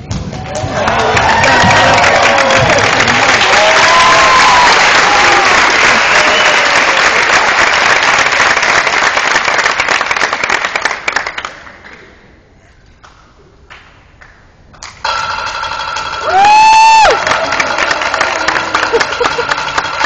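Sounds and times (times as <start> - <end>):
audience applauding: 0.3 - 11.9, 16.2 - 20.0.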